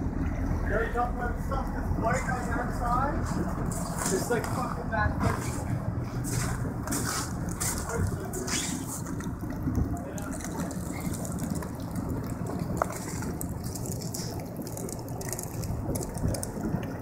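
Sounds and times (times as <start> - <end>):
boat engine running: 0.0 - 17.0
water rushing: 0.0 - 17.0
ice crunching against hull: 5.3 - 17.0.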